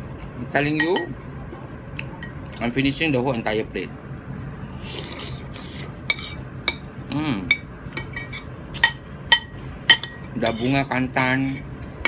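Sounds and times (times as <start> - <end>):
cutlery clinking against a bowl: 0.8 - 1.1, 6.1 - 6.8, 7.5 - 11.7
slurping from a spoon: 4.8 - 6.0.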